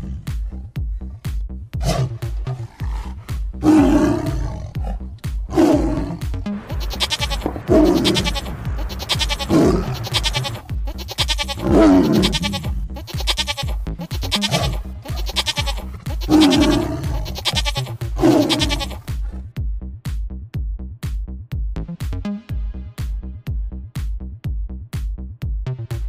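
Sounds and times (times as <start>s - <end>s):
electronic music with beat: 6.2s - 19.2s
sheep bleating: 6.6s - 19.1s.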